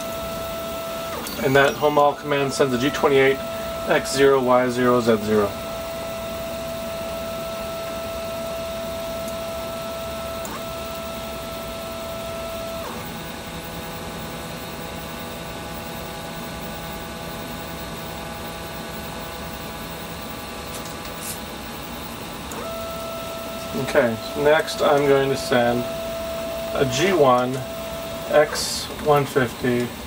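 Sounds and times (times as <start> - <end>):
stepper motors whining: 0.0 - 8.2, 18.8 - 30.0.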